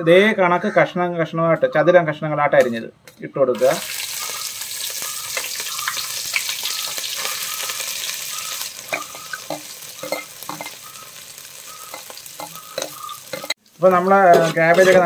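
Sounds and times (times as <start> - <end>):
cabbage sizzling in hot oil: 3.6 - 15.0
metal spatula scraping: 8.9 - 10.8, 11.8 - 15.0.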